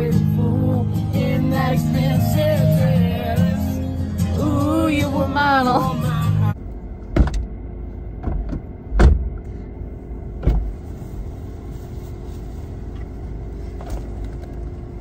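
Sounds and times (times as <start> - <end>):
car interior hum: 0.0 - 15.0.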